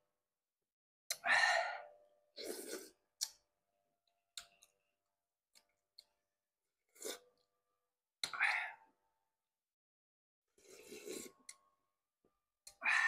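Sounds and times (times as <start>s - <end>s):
man eating porridge: 1.1s - 3.4s, 10.6s - 11.6s.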